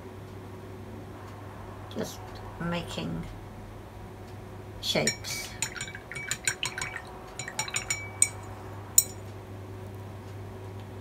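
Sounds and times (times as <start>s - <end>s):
brush handle clinking on glass: 5.0s - 9.2s.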